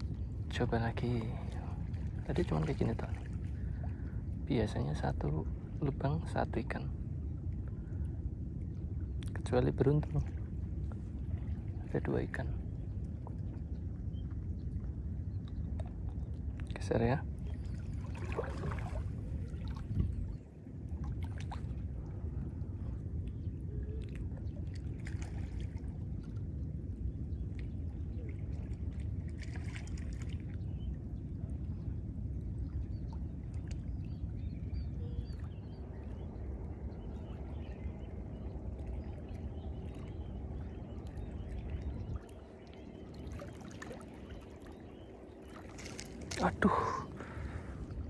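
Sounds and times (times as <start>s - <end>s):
wind rumble on microphone: 0.0s - 48.0s
water lapping against rocks: 17.5s - 20.4s, 38.8s - 48.0s.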